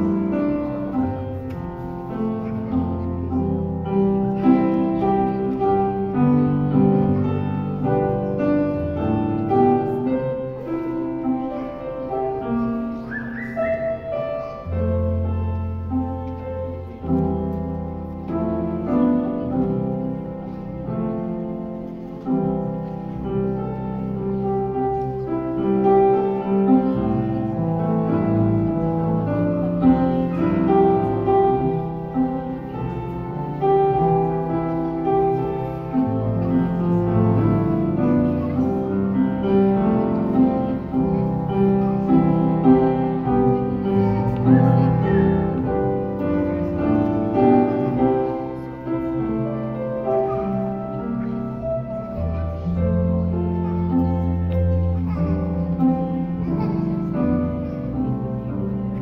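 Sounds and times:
slow grand piano piece: 0.0 - 59.0.

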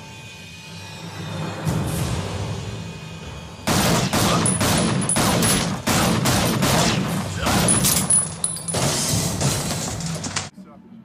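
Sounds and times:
pistol firing rapid shots: 3.7 - 7.8.

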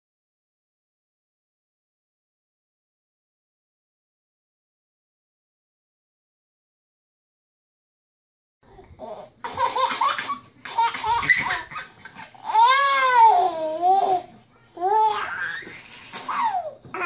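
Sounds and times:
babies laughing: 8.9 - 17.0.

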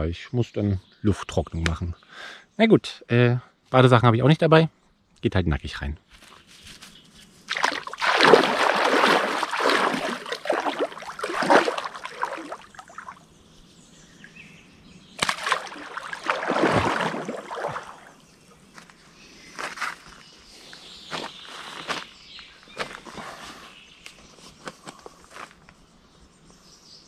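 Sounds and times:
water splashing from wading: 7.5 - 13.2, 15.2 - 18.2.

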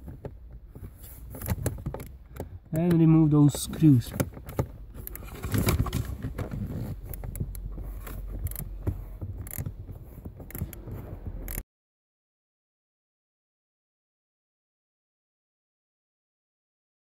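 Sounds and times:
socket clicking and scraping on screws: 1.2 - 2.6, 4.1 - 11.6.

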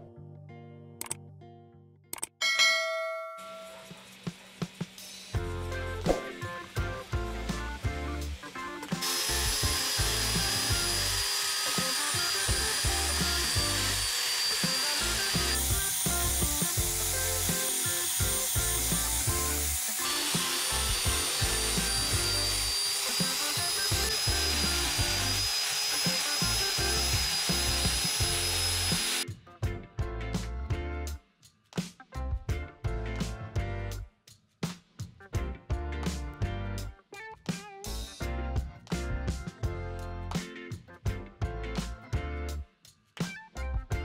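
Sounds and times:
angle grinder whining: 3.6 - 5.5, 6.4 - 29.2
background music with a beat: 3.8 - 44.0.

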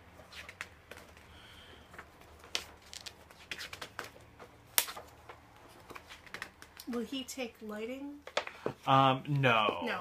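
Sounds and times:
paper pages rustling and flicking: 2.0 - 6.8.

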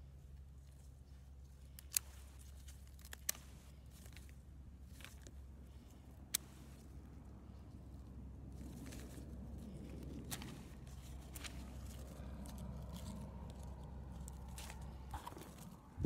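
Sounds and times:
faint low hum: 0.0 - 16.0
hand pruners snipping stems: 1.6 - 7.0, 8.6 - 16.0.

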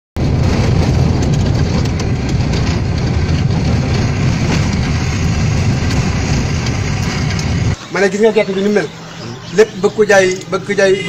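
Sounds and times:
rattles and clicks: 0.2 - 7.8
vehicle engine and road rumble: 0.2 - 11.0.

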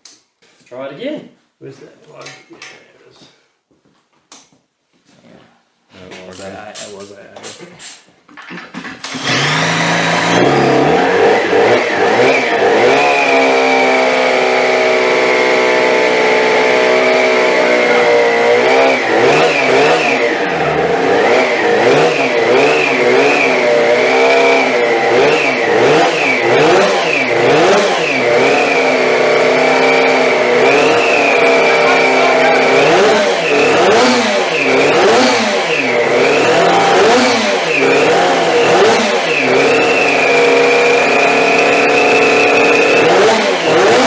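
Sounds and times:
two-stroke engine revving: 8.9 - 44.0.

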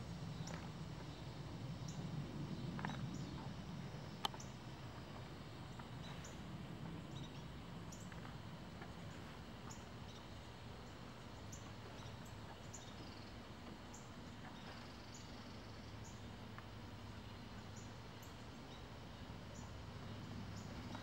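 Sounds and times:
steady low rumble: 0.0 - 12.2
small birds chirping: 7.1 - 21.0.

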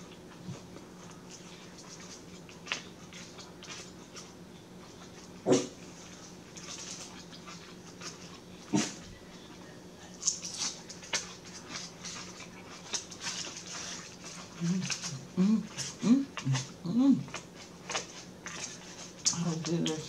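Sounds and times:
dog barking: 5.5 - 5.7.

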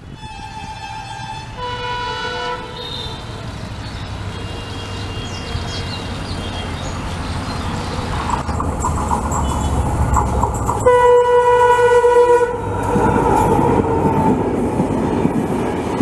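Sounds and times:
locomotive engine and rail rumble: 0.0 - 16.0
locomotive horn blasts: 0.1 - 3.3, 9.3 - 12.8.

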